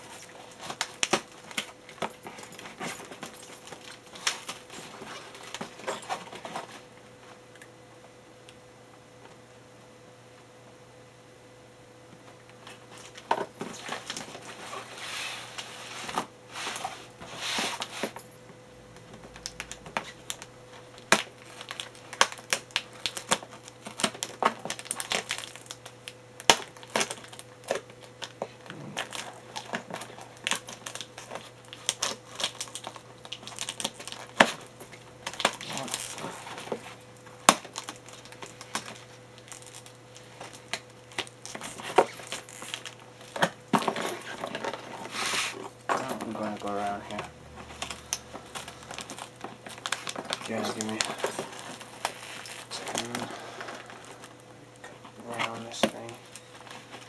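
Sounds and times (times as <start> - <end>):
tape crinkling and tearing: 0.0 - 6.8, 19.0 - 57.0
faint steady hum: 0.0 - 57.0.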